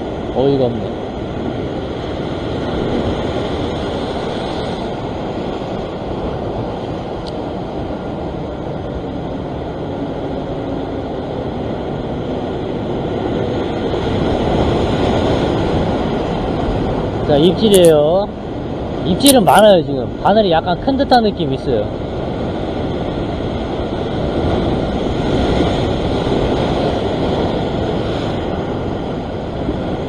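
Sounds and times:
ocean surf breaking over rocks: 0.0 - 30.0.

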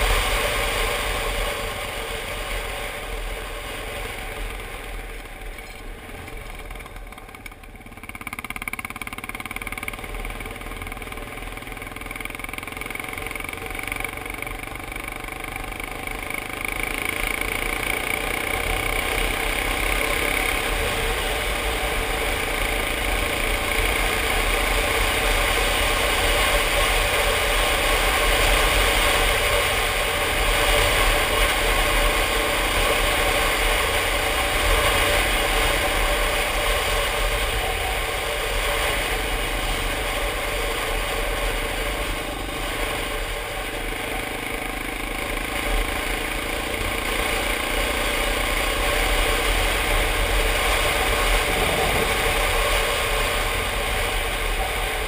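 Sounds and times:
motorcycle engine running: 0.0 - 55.0
wind rushing over microphone: 51.0 - 53.4.

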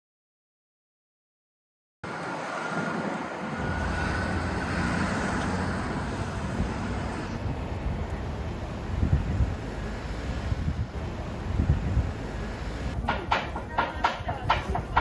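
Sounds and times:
road traffic hum: 2.0 - 15.0
low rumble: 3.4 - 13.1.

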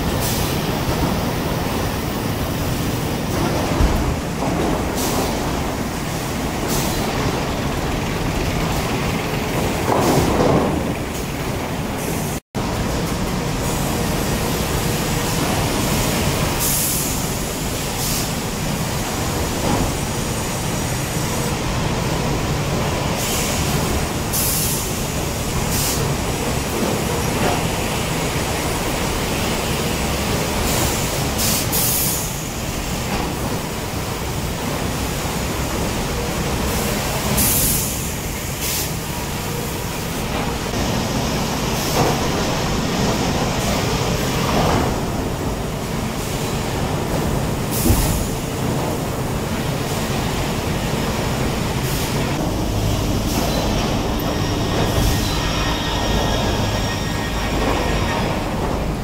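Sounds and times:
sawmill machinery running: 0.0 - 31.4, 32.1 - 59.0.

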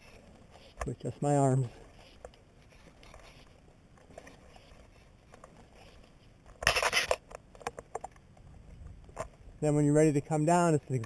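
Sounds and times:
rope and hardware clicking: 0.0 - 9.4
fingers rubbing against camera: 1.8 - 7.3.

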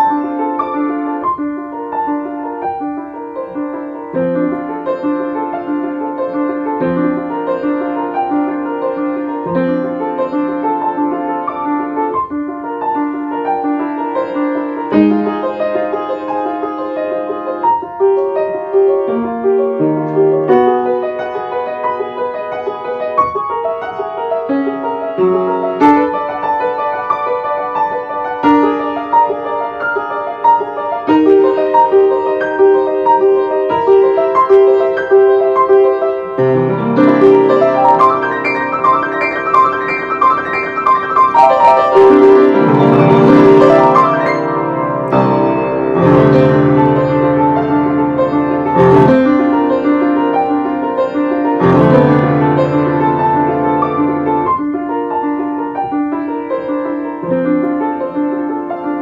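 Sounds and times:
solo piano piece: 0.0 - 59.0.

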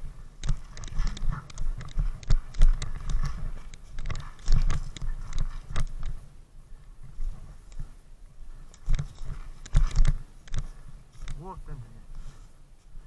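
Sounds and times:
gear bumping against camera: 0.0 - 6.3, 8.6 - 12.2.

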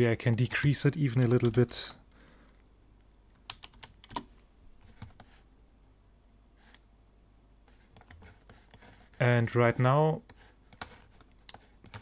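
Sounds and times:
keyboard and mouse clicks: 3.3 - 5.4, 7.9 - 8.9, 9.6 - 12.0.

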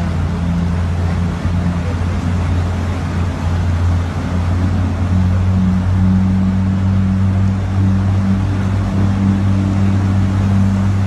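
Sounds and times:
floodwater rushing: 0.0 - 11.0
low drone: 0.0 - 11.0.

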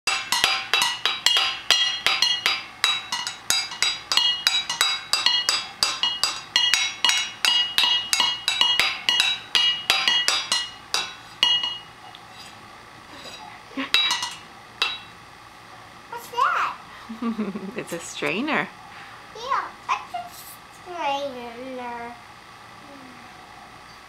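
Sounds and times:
sticks beating metal pots: 0.0 - 11.9, 13.3 - 15.1.

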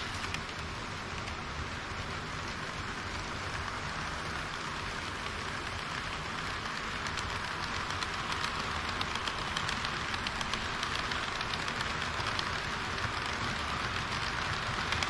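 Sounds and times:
model train wheels hissing: 0.0 - 15.0.

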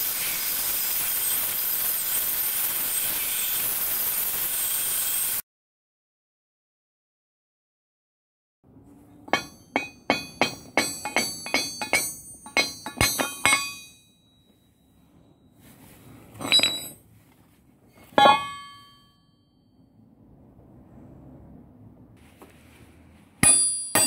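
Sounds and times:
hammer striking metal rail: 9.2 - 14.1, 18.1 - 19.2, 23.4 - 24.0.

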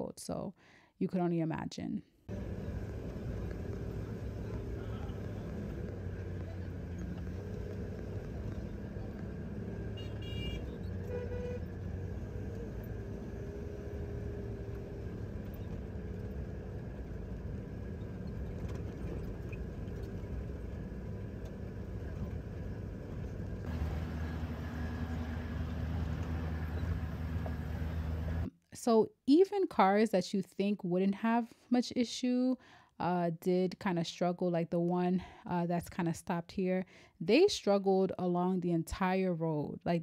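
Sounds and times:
vehicle engine and tyre drone: 2.3 - 28.5
car horn toot: 9.9 - 11.9.

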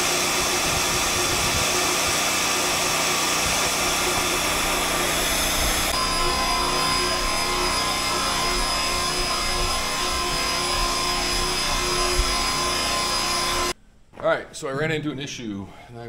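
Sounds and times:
drill press boring through steel: 0.0 - 13.8.

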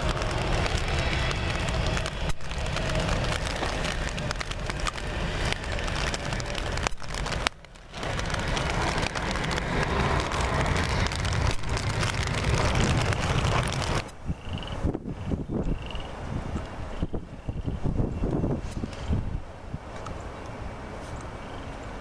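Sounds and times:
heavy rain crackling: 0.0 - 15.0
jet airliner rumble: 0.0 - 22.0.

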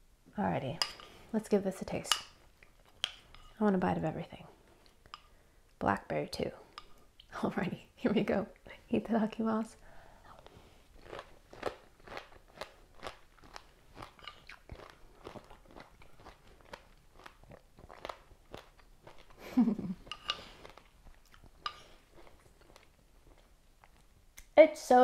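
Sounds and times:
crunching and chewing: 10.3 - 19.4, 20.0 - 24.1.

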